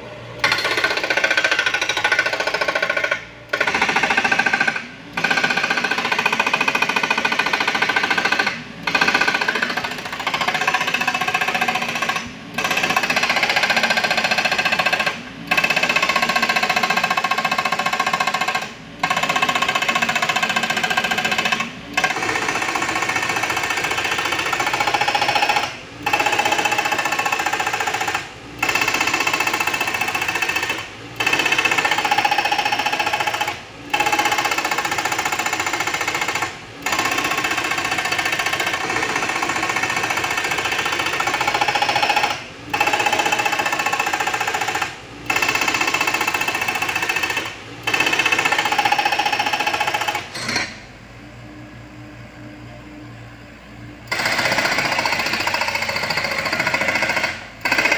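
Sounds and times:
hydraulic breaker hammering rock: 0.4s - 50.8s, 54.1s - 57.9s.

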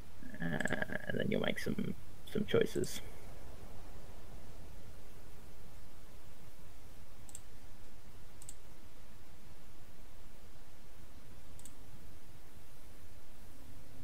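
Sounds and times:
low background hum: 0.0s - 14.0s
computer mouse clicks: 7.2s - 7.5s, 8.4s - 8.6s, 11.5s - 11.8s.

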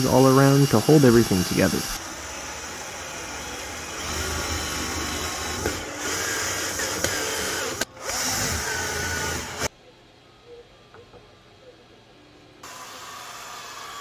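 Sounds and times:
cordless drill driving screw: 0.0s - 9.7s.

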